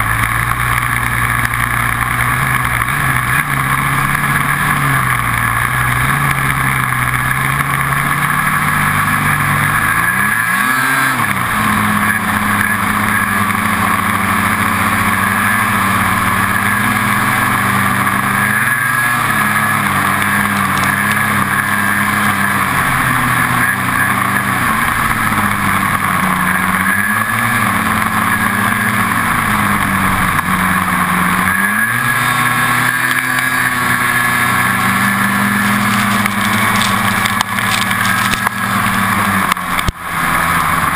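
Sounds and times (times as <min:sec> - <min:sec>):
snowmobile engine revving: 0:00.0 - 0:40.9.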